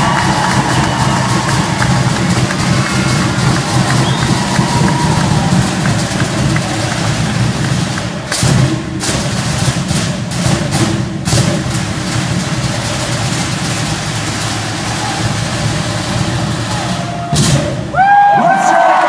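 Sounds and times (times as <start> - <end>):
loud fast drumming: 0.0 - 19.0.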